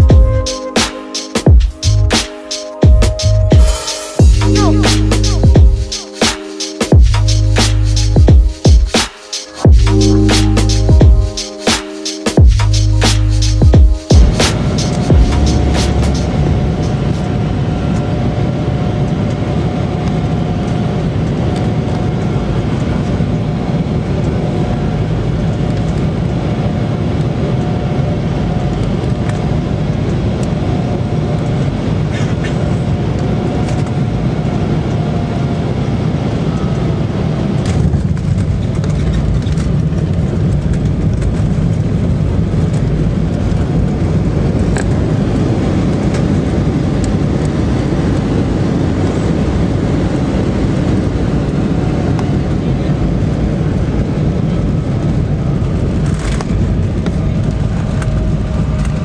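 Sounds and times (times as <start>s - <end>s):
jet engine roar with whine: 14.0s - 59.0s.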